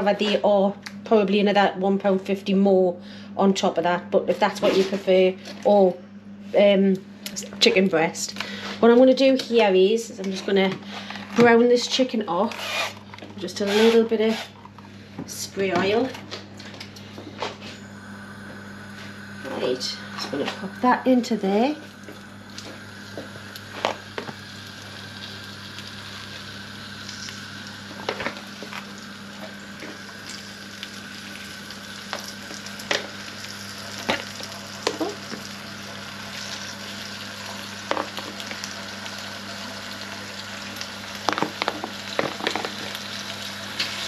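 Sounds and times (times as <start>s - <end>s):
chicken sizzling in a pan: 22.0s - 44.0s.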